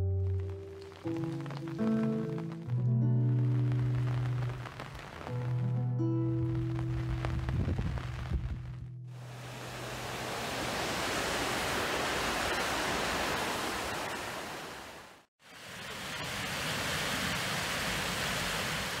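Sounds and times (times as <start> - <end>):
river water rushing over weir: 9.2 - 19.0.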